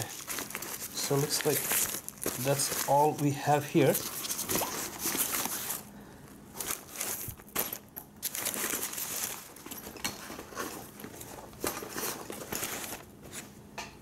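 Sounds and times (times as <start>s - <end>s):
rustling and crinkling of bag: 0.0s - 13.6s.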